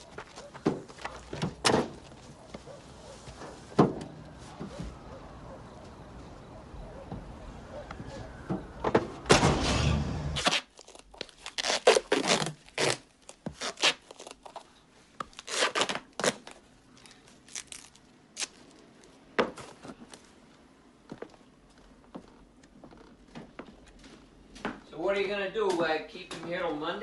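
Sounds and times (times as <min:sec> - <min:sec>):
duct tape ripping: 0:09.4 - 0:14.6, 0:15.2 - 0:16.6, 0:17.4 - 0:18.8.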